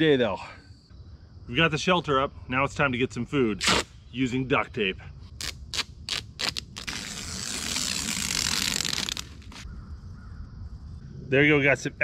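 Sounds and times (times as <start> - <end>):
duct tape ripping off roll: 3.6 - 3.9, 5.4 - 9.6
tape crinkling and clicking: 5.4 - 9.6
tape rustling: 5.4 - 9.6.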